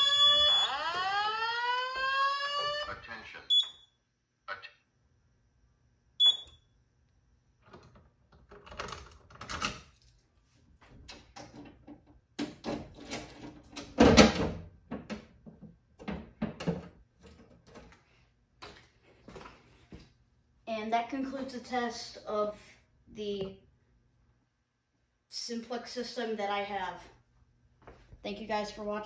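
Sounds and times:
short high beep: 6.2s - 6.6s
metal cabinet clicks and rattles: 11.2s - 15.4s, 16.0s - 17.8s.

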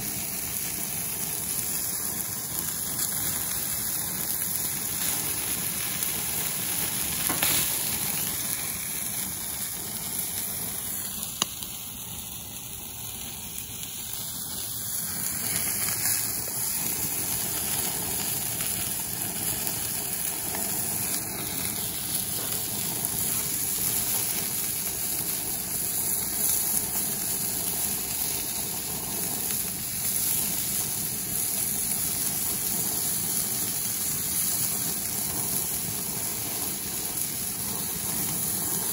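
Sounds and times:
food sizzling on grill: 0.0s - 38.9s
sharp pops: 7.1s - 8.7s.

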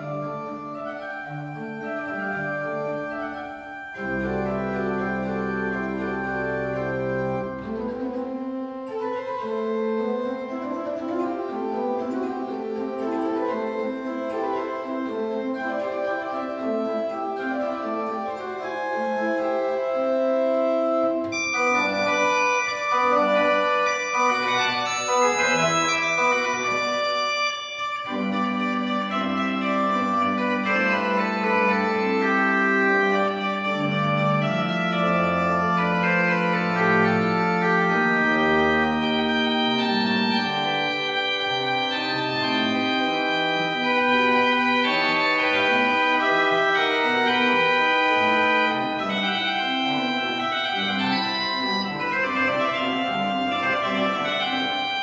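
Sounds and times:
deep organ pedal notes: 0.0s - 55.0s
pipe organ playing: 0.0s - 55.0s.

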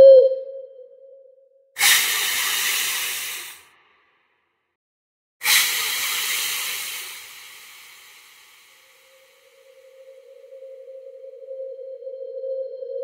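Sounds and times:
hisses: 1.8s - 3.7s, 5.4s - 10.1s.

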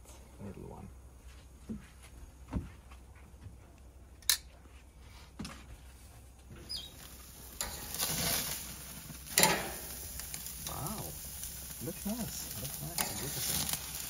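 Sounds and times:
steaks sizzling on grill: 6.5s - 14.0s
metal grill lid clanking: 6.6s - 10.4s, 12.6s - 14.0s.

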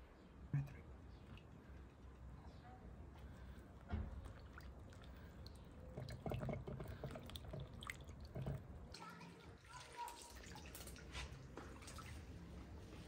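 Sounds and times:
wet squelches of soaked bread: 3.2s - 13.0s
small drips: 3.4s - 12.7s.

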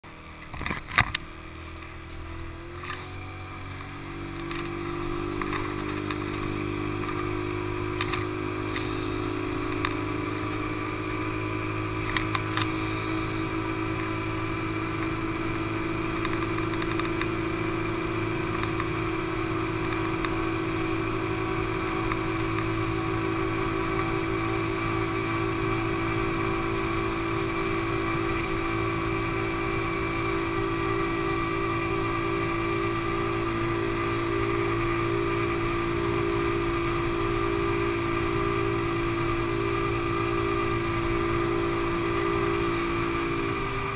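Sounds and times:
scooter engine droning: 0.0s - 43.9s.

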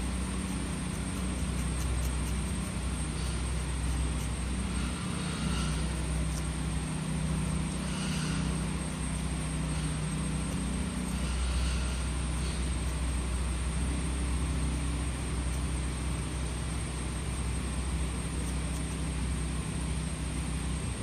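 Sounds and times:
knife scratching scratchboard: 0.0s - 6.6s, 9.7s - 13.1s
low mechanical drone: 0.0s - 21.0s.

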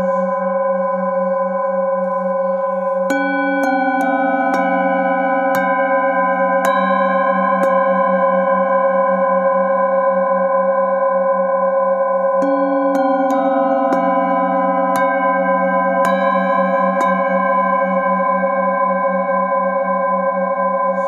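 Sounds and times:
singing bowls struck with mallet: 0.0s - 21.0s.

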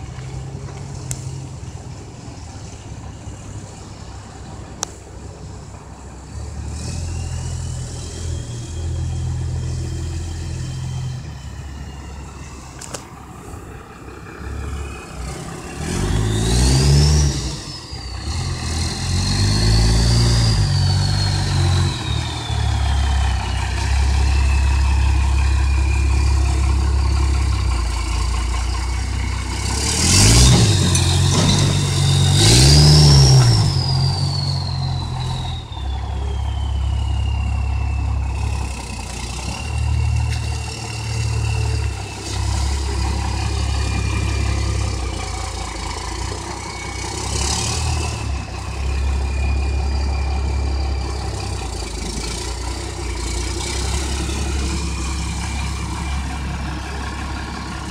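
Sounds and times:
diesel engine running and revving: 0.0s - 57.9s
turbo whistle: 30.7s - 57.9s.

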